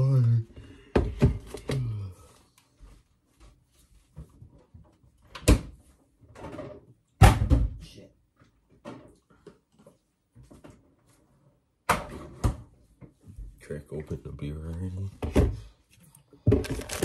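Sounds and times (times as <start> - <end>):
kitchen items knocking and thudding: 0.6 - 1.8, 4.2 - 7.8, 11.8 - 13.2, 15.1 - 15.8, 16.4 - 17.0.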